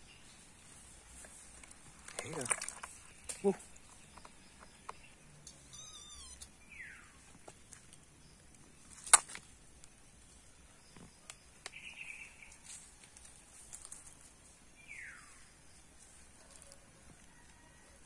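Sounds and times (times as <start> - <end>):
cat mewing: 5.6 - 6.5
animals rustling in dry leaves: 12.4 - 17.9.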